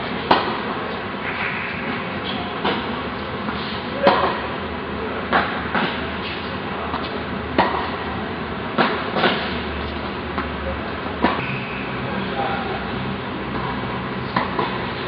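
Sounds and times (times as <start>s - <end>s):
steady background noise: 0.0s - 15.0s
tennis ball hit and bouncing: 0.3s - 0.7s, 1.3s - 4.5s, 6.9s - 8.0s, 8.8s - 9.6s, 11.2s - 11.7s, 13.5s - 15.0s.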